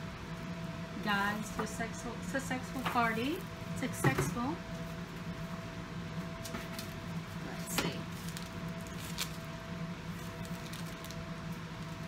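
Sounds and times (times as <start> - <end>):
steady low hum: 0.0 - 12.0
paper package crinkling: 7.9 - 12.0.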